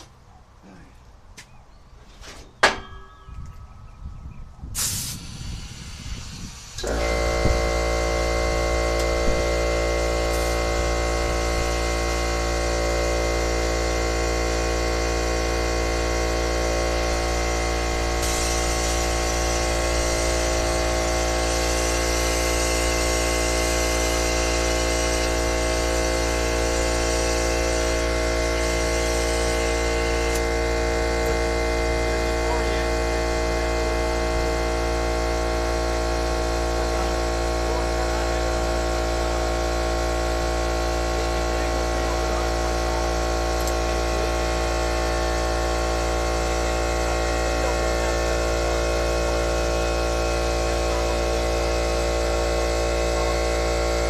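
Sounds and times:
air compressor running: 0:04.6 - 0:54.0
hiss of air: 0:04.7 - 0:07.6, 0:18.0 - 0:30.4.

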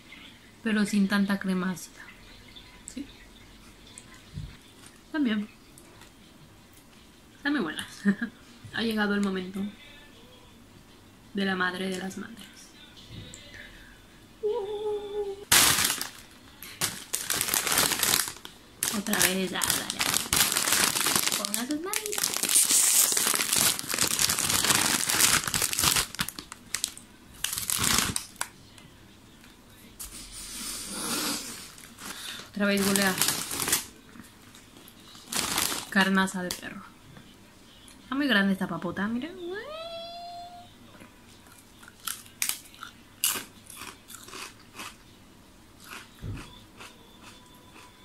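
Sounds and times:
chip bag crinkling: 0:15.5 - 0:28.5, 0:31.7 - 0:36.6
chewing with soft crunches: 0:45.8 - 0:48.0.

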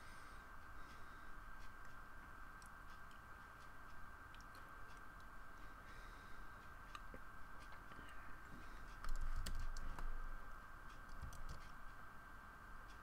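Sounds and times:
high electronic hum: 0:00.0 - 0:13.0
computer input clicks and taps: 0:09.0 - 0:10.1, 0:11.0 - 0:11.8.

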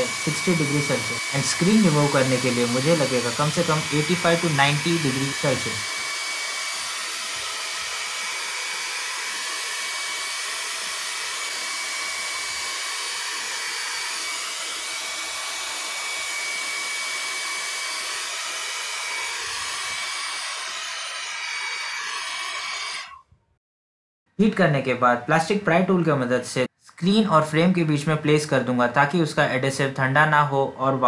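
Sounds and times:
hair dryer blowing: 0:00.0 - 0:23.2.

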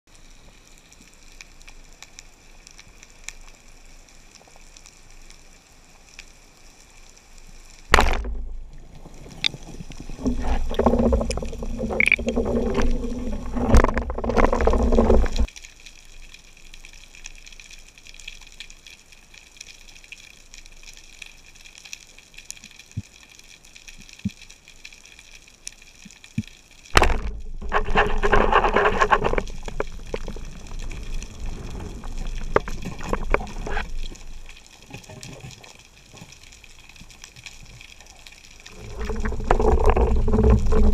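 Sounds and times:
faint underwater crackle: 0:00.1 - 0:40.9
low rushing water noise: 0:07.9 - 0:15.5, 0:38.7 - 0:40.9.

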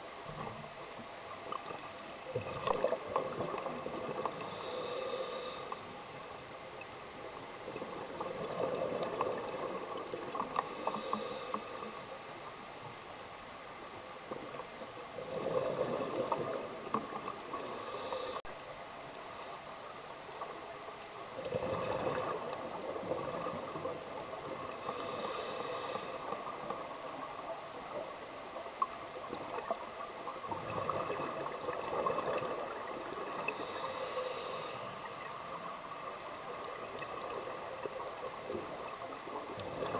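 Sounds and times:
hissing inhale through regulator: 0:04.2 - 0:06.6, 0:10.5 - 0:13.2, 0:17.3 - 0:20.1, 0:24.7 - 0:26.8, 0:33.1 - 0:36.0
exhale bubbling underwater: 0:21.4 - 0:25.3.

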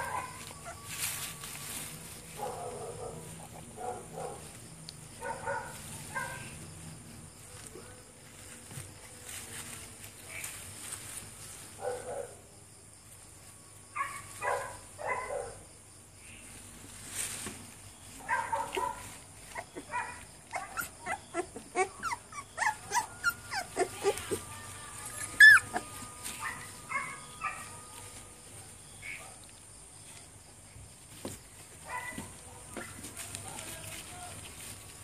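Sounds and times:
puppies yipping and whimpering: 0:00.0 - 0:02.2, 0:18.7 - 0:27.8
puppy high squeal: 0:20.5 - 0:24.4, 0:25.1 - 0:26.0.

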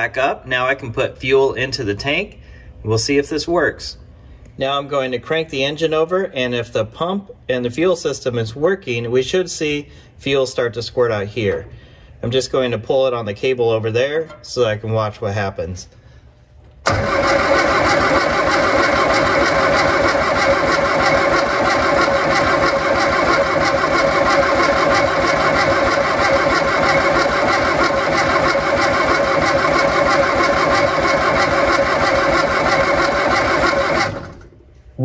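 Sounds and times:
engine cranking on starter motor: 0:16.8 - 0:34.6.

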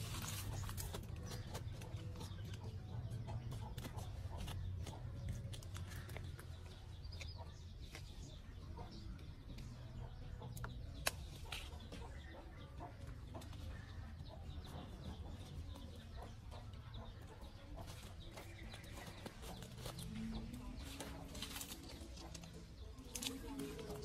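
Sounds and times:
chickens clucking: 0:00.0 - 0:24.0.

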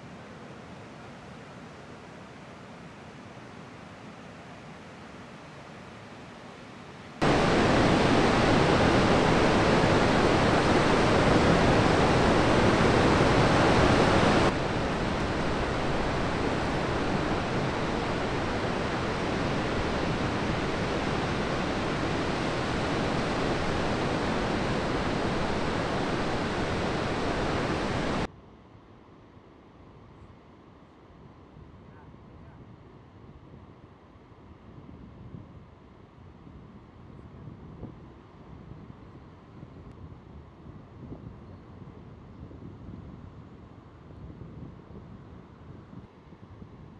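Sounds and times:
heavy breaking surf: 0:07.2 - 0:28.3.

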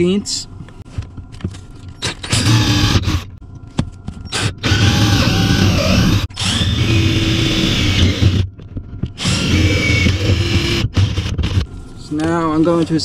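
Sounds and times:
cordless drill whining: 0:02.3 - 0:03.2, 0:04.3 - 0:08.4, 0:09.2 - 0:11.6.

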